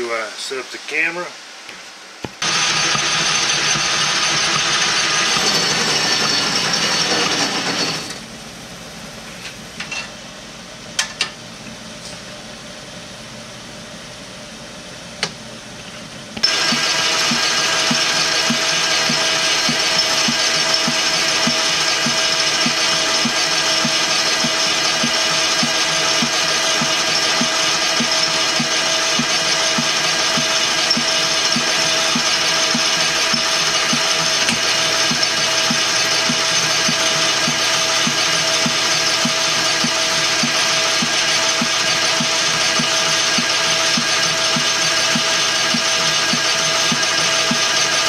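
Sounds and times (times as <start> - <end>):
metal lathe whining: 2.4 - 8.2, 16.4 - 48.0.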